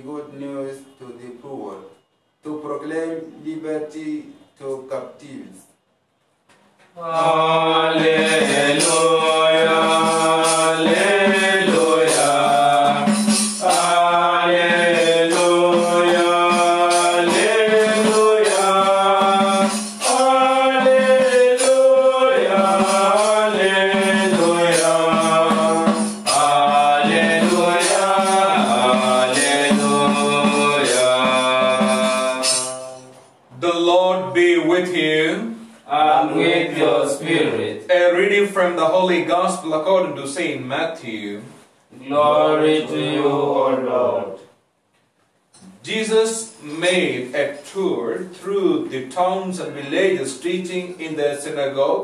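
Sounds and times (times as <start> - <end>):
instrumental accompaniment: 6.4 - 33.5, 34.8 - 37.7
choir singing church music: 7.0 - 33.3, 35.9 - 37.8, 42.0 - 44.4.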